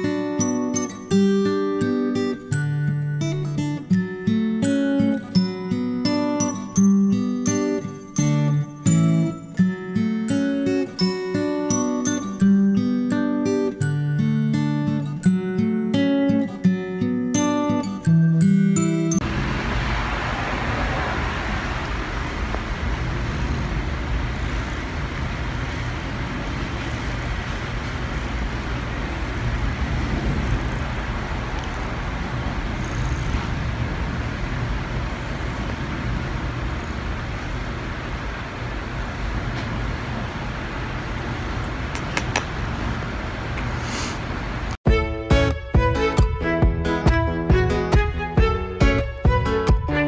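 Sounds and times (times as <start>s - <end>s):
cat purring: 32.7s - 33.5s.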